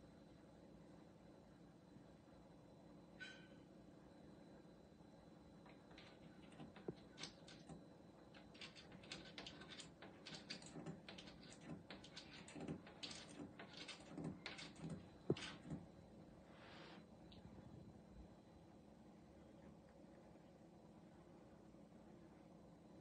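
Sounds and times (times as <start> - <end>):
faint clicking and tapping: 5.6 - 16.0.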